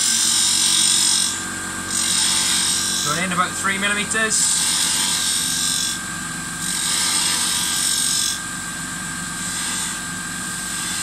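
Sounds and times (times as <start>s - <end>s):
wood lathe motor whine: 0.0s - 11.0s
turning tool scraping wood: 1.9s - 6.0s, 6.6s - 8.3s.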